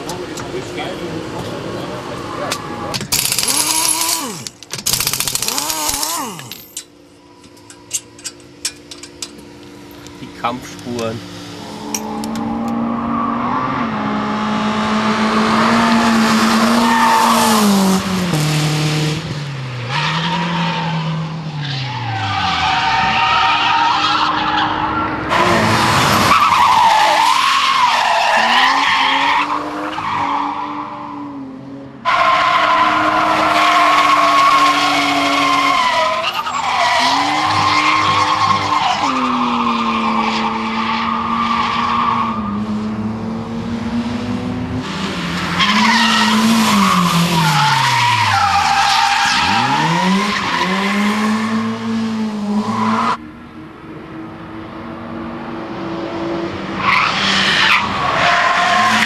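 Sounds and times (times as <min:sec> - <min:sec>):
car engine revving: 0:00.0 - 0:06.8, 0:09.0 - 0:53.2
tyres squealing: 0:32.1 - 0:42.3.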